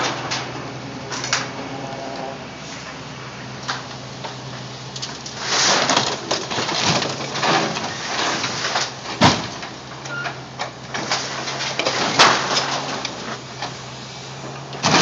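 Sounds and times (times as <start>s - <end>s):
excavator diesel engine running: 0.0s - 15.0s
crunching sheet metal: 5.0s - 9.7s.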